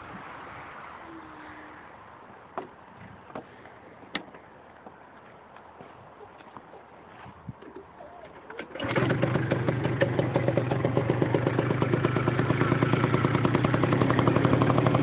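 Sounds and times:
steady hiss: 0.0s - 5.6s.

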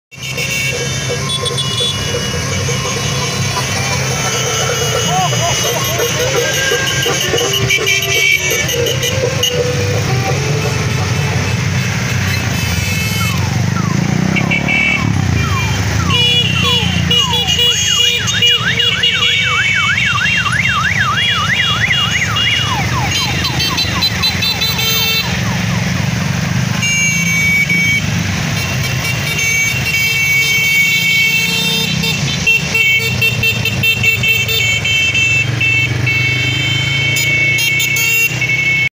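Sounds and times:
horns honking: 0.1s - 38.9s
motorcycle engines passing: 0.1s - 38.9s
electronic siren yelping: 0.7s - 11.8s, 12.4s - 26.2s.

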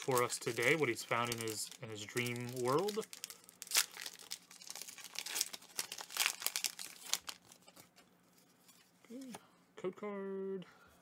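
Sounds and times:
foil wrapper tearing and crinkling: 0.0s - 7.7s.

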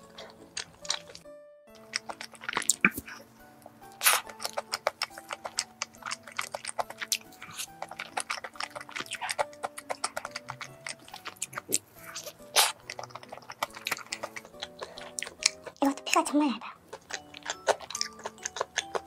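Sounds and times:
soft background music: 0.0s - 19.0s
wet chewing and mouth smacks: 0.0s - 19.0s.

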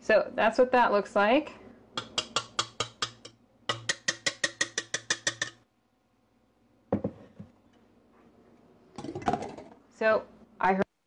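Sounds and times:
whisk clicking in metal bowl: 2.0s - 5.6s.

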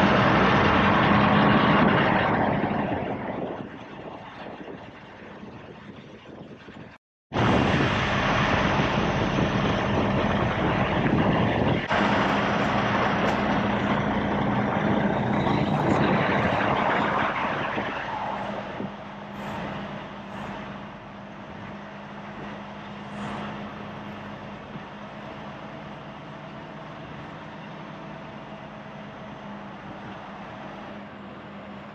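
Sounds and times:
truck diesel engine running: 7.4s - 31.9s.

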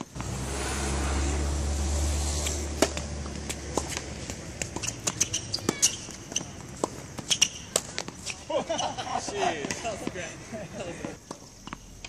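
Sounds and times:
racket striking tennis ball: 2.1s - 8.4s
shoes tapping on court: 2.4s - 8.4s.

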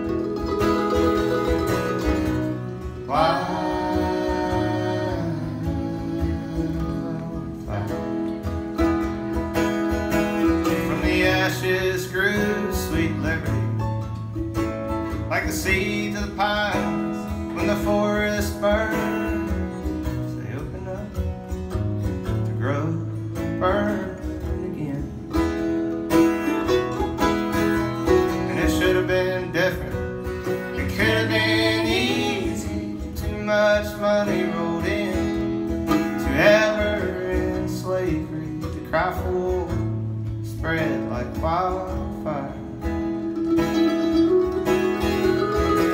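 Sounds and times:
acoustic guitar strumming: 0.0s - 45.9s
mandolin playing: 0.0s - 45.9s
person singing: 3.0s - 8.4s, 28.4s - 39.9s.

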